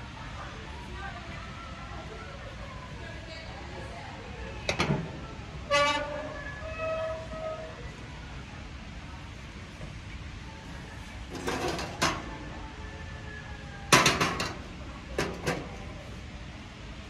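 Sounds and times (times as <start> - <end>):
scraping rattle: 11.3 - 12.4
metal chimney starter clattering on grate: 11.3 - 12.6, 13.9 - 16.0.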